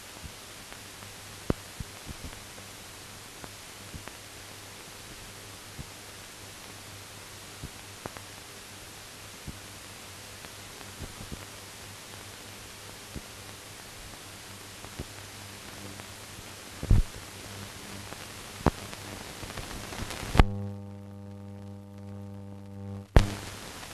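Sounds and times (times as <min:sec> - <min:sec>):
film soundtrack hiss: 0:00.0 - 0:23.9
buzzing hum: 0:14.4 - 0:23.9
clicks and pops: 0:19.9 - 0:20.9, 0:21.5 - 0:23.6.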